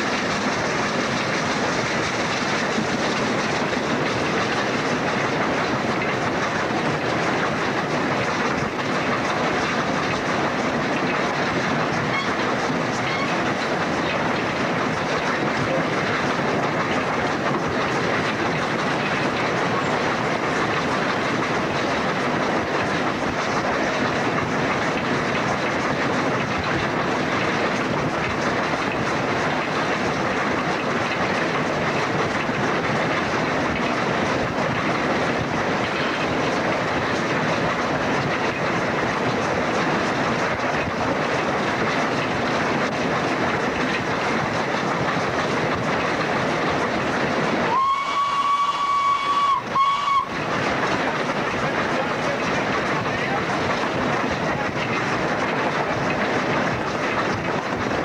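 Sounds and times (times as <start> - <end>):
steam locomotive running noise: 0.0 - 58.0
steam locomotive whistle: 13.0 - 13.3, 47.7 - 50.4.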